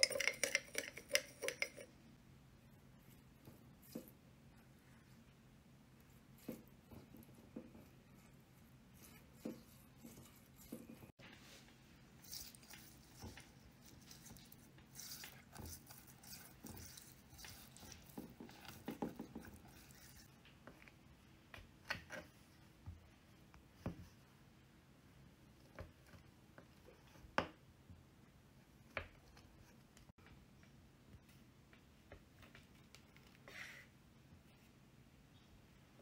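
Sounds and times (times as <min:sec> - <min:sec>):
pastry brush dabbing on chicken: 0:06.0 - 0:20.3.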